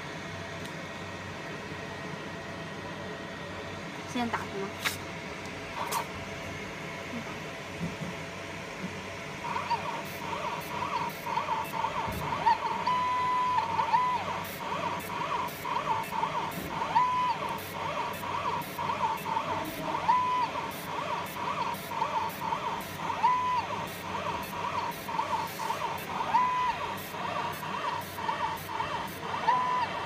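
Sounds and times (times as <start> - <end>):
laser machine pulsing buzz: 5.7 - 30.0
rotary axis whine: 9.4 - 30.0.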